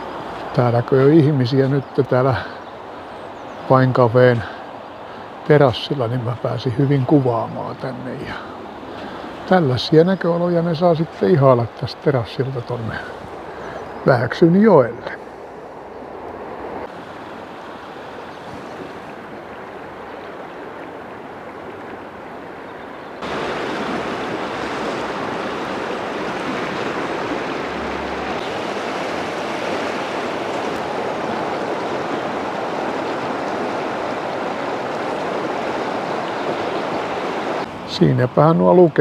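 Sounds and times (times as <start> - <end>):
river water rushing: 0.0 - 38.5.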